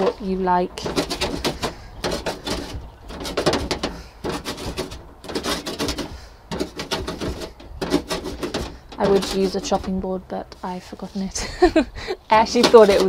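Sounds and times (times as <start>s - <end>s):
herb cutter chopping leaves: 0.8s - 10.0s.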